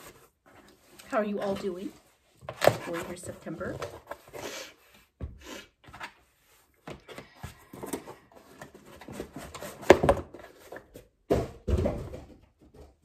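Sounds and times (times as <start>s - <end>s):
cardboard scraping and rustling: 7.8s - 11.2s.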